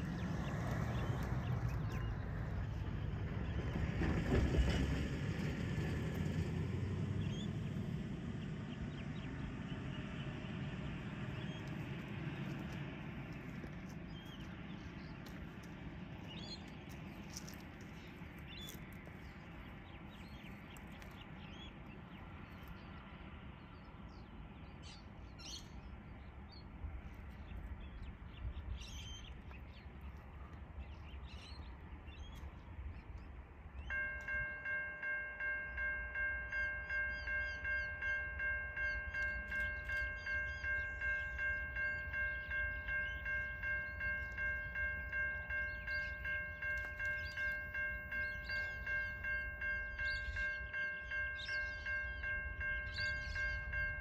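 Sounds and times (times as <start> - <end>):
birds chirping: 27.3 - 54.0
level crossing warning bell: 33.8 - 54.0.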